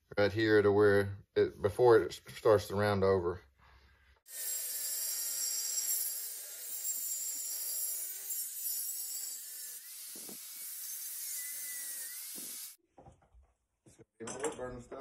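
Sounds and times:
angle grinder cutting metal: 4.3 - 12.8.

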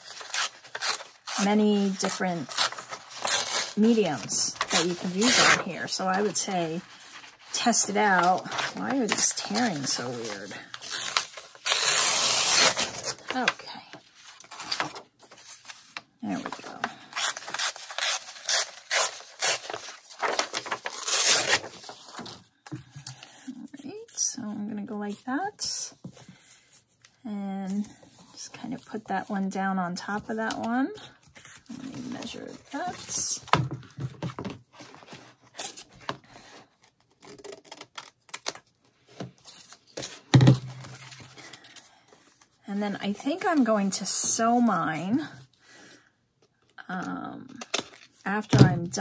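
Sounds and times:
paper rustling: 0.1 - 22.4
paper tearing: 7.5 - 13.5, 16.3 - 22.2.

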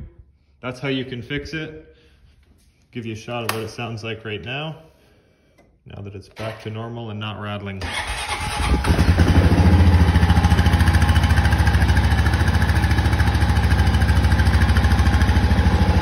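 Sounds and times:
atv engine idling: 7.9 - 16.0.

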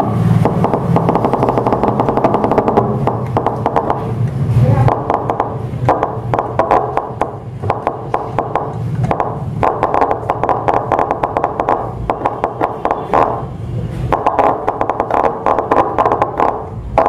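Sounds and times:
loudspeaker crackling and popping: 0.0 - 17.0.

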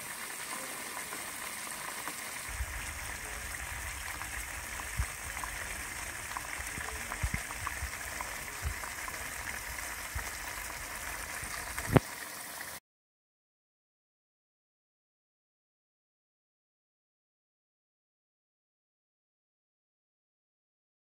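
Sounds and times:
curry bubbling in a pan: 0.0 - 12.8.

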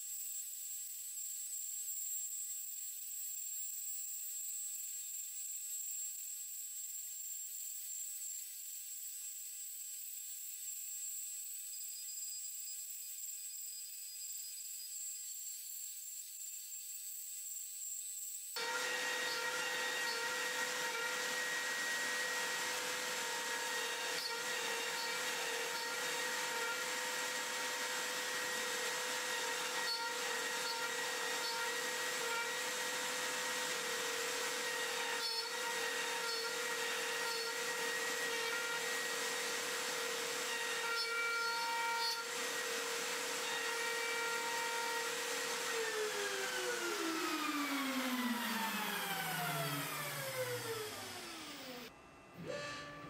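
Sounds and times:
router bit rasping into wood: 18.6 - 51.7
router spindle whining: 18.6 - 53.0.

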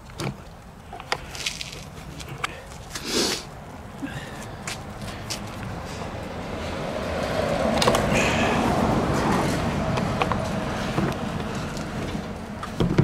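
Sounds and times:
motor vehicle passing: 3.0 - 12.8.

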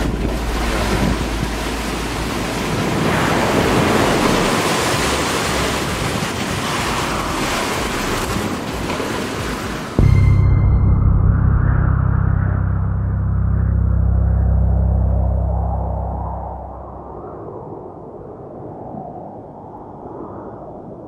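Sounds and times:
low steady hum: 0.0 - 3.3, 10.0 - 17.4
wind buffeting microphone: 0.0 - 10.1
breaking waves: 0.0 - 10.6
strong wind: 0.0 - 21.0.

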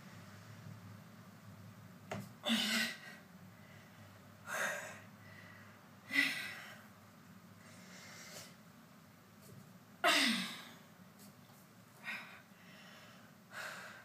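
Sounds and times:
woman breathing hard: 2.4 - 6.9, 12.0 - 14.0.

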